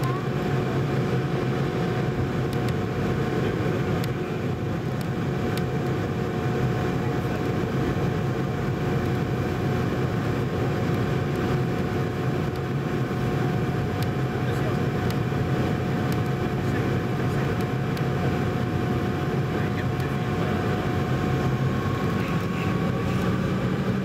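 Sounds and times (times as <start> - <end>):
airplane cabin rumble: 0.0 - 24.0
jet engine whine: 0.0 - 24.0.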